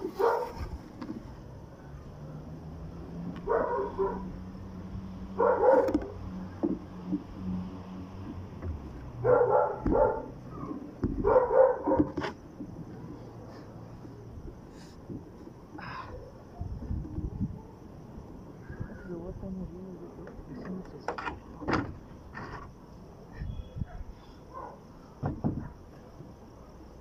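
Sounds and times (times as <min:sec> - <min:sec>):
dog barking: 0:00.1 - 0:00.6, 0:03.5 - 0:04.3, 0:05.4 - 0:06.0, 0:09.2 - 0:10.4, 0:11.2 - 0:12.2, 0:23.8 - 0:24.8.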